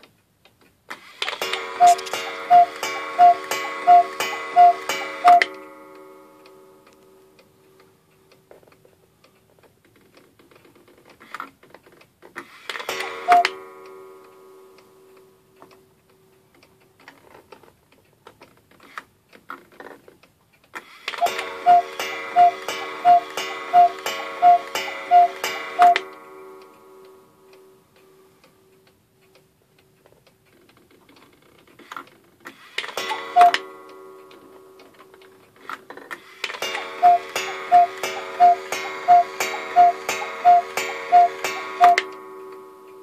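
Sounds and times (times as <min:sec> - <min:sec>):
faint ticks and knocks: 0:00.0 - 0:43.0
cuckoo clock strikes ringing: 0:01.2 - 0:07.9, 0:12.8 - 0:16.0, 0:21.1 - 0:28.4, 0:32.8 - 0:43.0.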